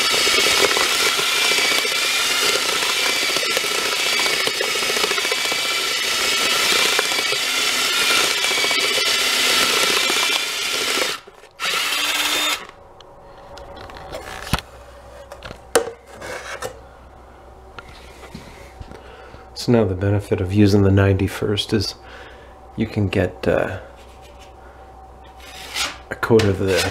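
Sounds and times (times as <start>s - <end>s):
electric drill mixer whining: 0.0s - 12.8s.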